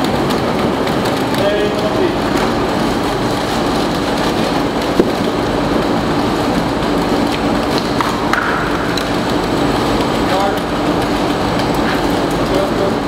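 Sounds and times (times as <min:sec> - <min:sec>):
mortar mixer and pump running: 0:00.0 - 0:13.0.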